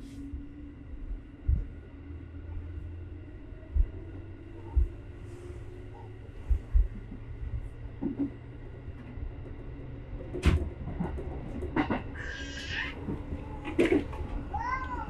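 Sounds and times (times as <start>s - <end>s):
train rumbling on rails: 0.0s - 15.0s
wheels thudding over rail joints: 3.7s - 15.0s
wheels clacking over rail joints: 7.0s - 15.0s.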